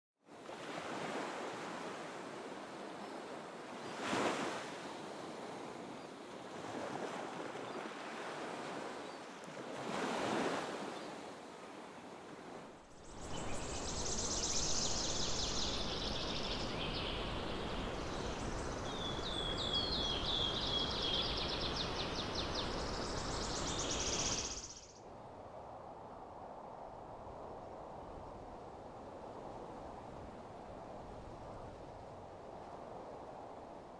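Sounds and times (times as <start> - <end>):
ocean waves breaking: 0.4 - 12.8
songbirds chirping and trilling: 12.9 - 25.0.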